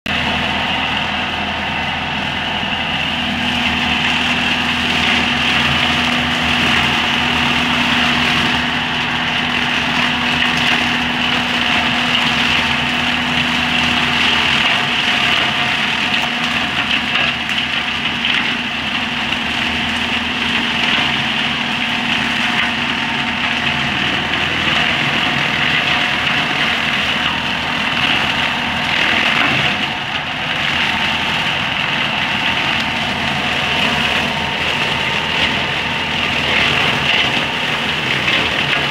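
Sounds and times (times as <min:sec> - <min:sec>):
tractor engine running: 0:00.0 - 0:38.9.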